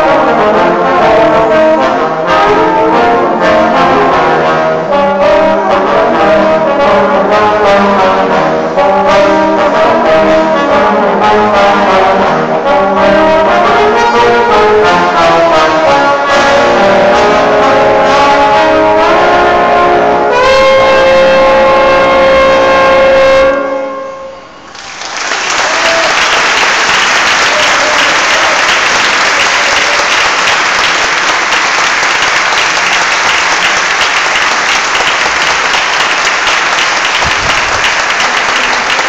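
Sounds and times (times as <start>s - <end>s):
brass ensemble chord: 0.0s - 24.7s, 25.5s - 39.0s
audience applause: 24.7s - 39.0s.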